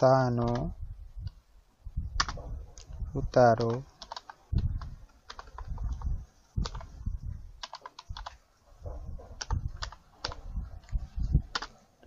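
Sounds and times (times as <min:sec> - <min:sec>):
computer keyboard typing: 0:00.3 - 0:00.7, 0:02.2 - 0:02.4, 0:03.3 - 0:07.0, 0:07.6 - 0:08.4, 0:09.4 - 0:11.8.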